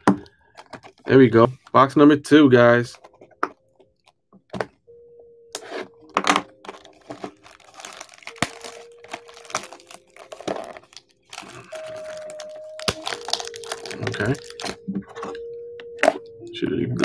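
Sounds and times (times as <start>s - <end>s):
plastic wrapping crinkling and tearing: 6.1s - 15.4s.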